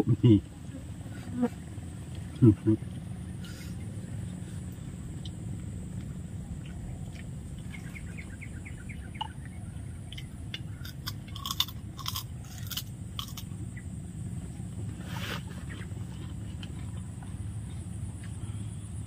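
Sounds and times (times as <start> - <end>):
steady low hum: 0.0 - 19.0
bird chirping: 6.4 - 10.8.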